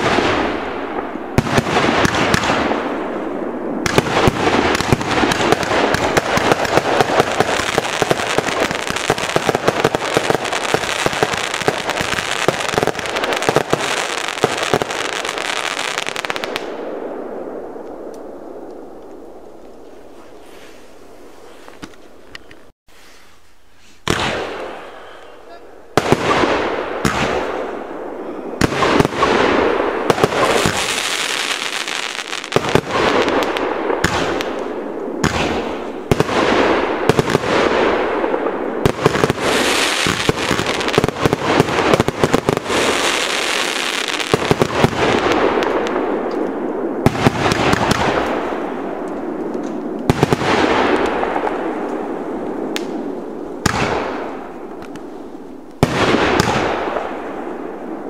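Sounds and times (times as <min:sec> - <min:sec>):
firework bangs: 0:00.0 - 0:18.2, 0:24.0 - 0:25.0, 0:25.9 - 0:58.0
firework crackling hiss: 0:28.6 - 0:38.0, 0:38.8 - 0:46.0.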